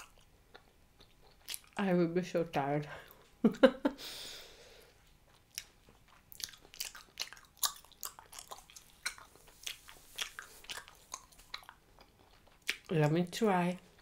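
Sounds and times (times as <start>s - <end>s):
gum chewing smacks: 0.0s - 1.8s, 5.1s - 12.9s
breath: 4.0s - 5.0s.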